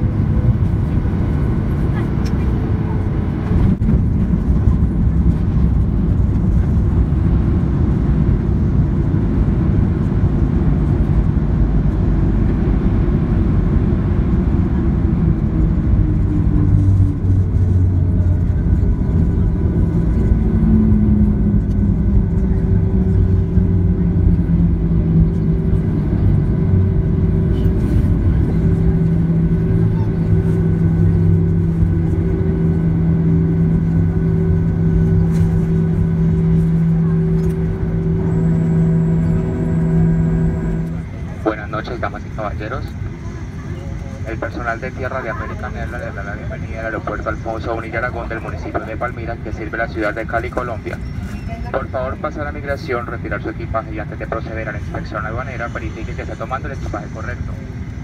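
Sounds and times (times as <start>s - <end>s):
airplane engines idling rumble: 0.0s - 58.0s.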